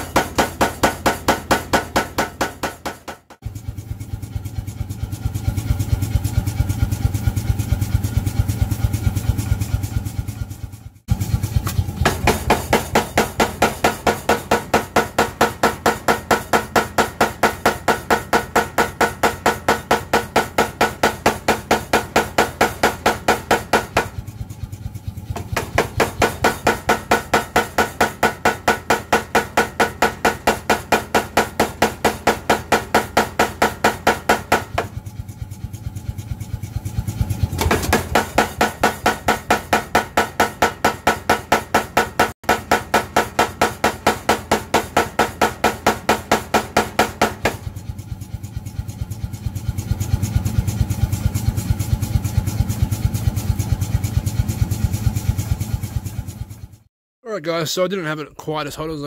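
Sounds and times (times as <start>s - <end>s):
power hammer hitting metal: 0.0s - 3.4s, 11.6s - 24.2s, 25.3s - 35.0s, 37.2s - 47.9s
motor hum: 3.4s - 13.6s, 34.8s - 39.2s.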